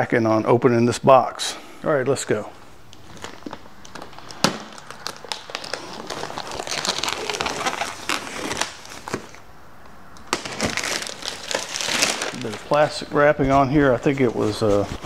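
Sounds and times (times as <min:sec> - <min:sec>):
plastic wrap crinkling: 0:02.9 - 0:09.4, 0:10.3 - 0:15.0.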